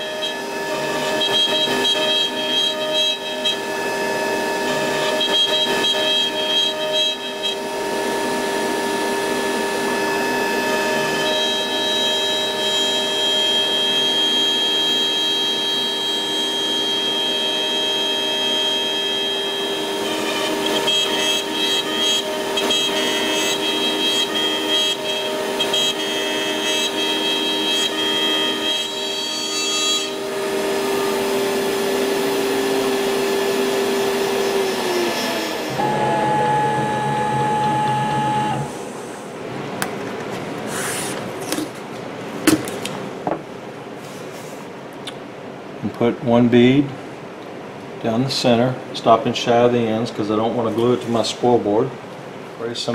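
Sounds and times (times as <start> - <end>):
router spindle whining: 0.0 - 39.1
bit milling hardwood: 30.0 - 38.8.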